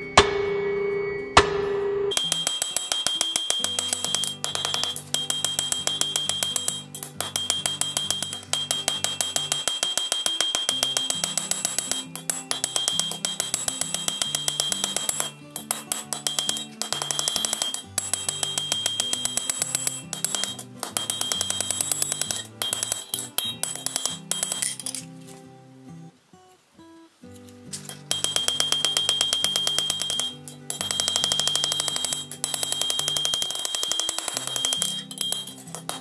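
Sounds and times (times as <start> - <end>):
instrumental music with fast beat: 2.1 - 24.7.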